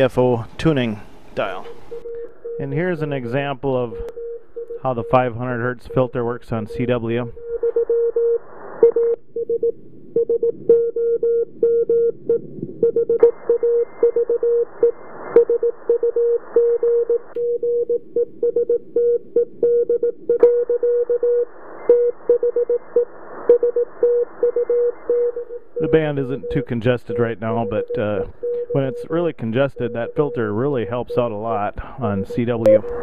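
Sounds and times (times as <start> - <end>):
radio band hiss: 0.0 - 4.0, 25.8 - 33.0
morse code tone: 1.4 - 33.0.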